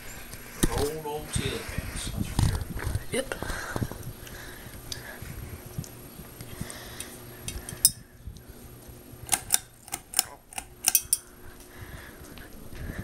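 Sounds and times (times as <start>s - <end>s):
fan motor hum: 0.0s - 13.0s
glass and metal clinks: 7.8s - 8.0s, 10.9s - 11.3s.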